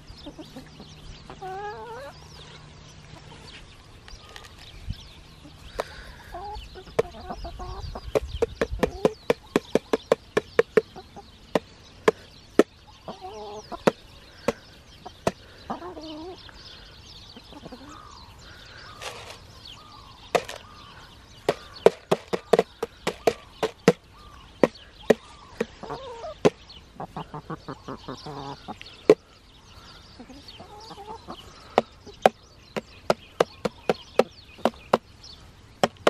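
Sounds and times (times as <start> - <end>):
hens clucking softly: 0.2 - 3.4, 5.4 - 11.3, 12.1 - 16.6, 17.3 - 18.2, 25.1 - 29.2, 30.2 - 32.4
beaks tapping plastic jar: 19.0 - 19.4, 20.3 - 20.6, 21.5 - 24.0.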